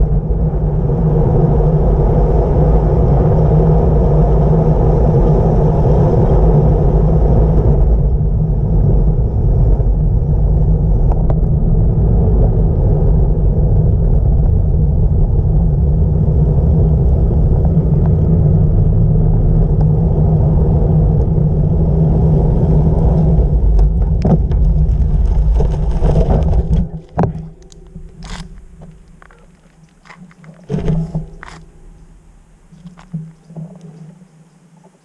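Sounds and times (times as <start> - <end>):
wind rushing over microphone: 0.0 - 34.8
tyre and road rumble: 0.0 - 35.0
clicks and rustles: 23.7 - 32.1.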